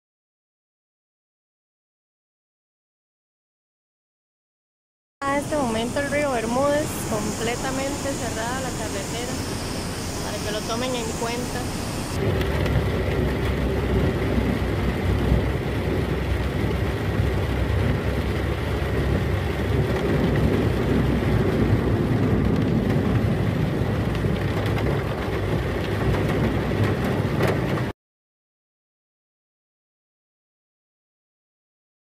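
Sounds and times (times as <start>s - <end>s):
car engine and tyres on wet road: 5.2s - 27.9s.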